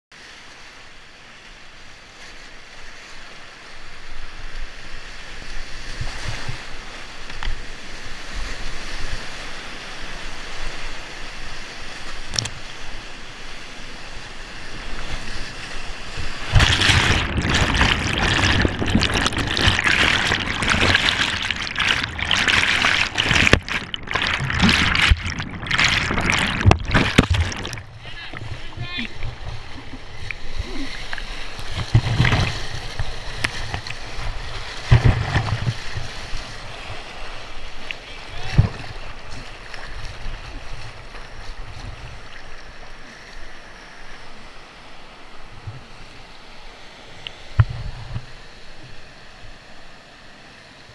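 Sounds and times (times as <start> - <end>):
water splashes: 2.1 - 50.8
whitewater rapids rushing: 15.8 - 41.8.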